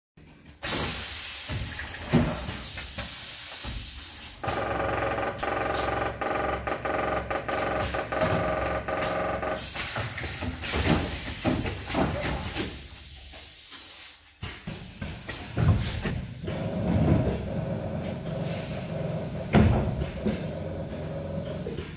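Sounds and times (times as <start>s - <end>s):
pneumatic cylinders and valves clicking: 0.5s - 17.4s
compressed air hissing: 0.6s - 4.4s, 9.6s - 14.3s.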